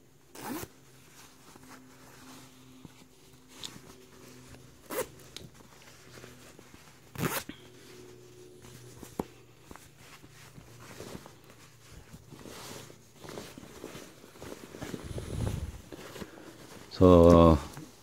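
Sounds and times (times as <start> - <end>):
zipper zipping and unzipping: 0.3 - 0.7, 7.1 - 7.5.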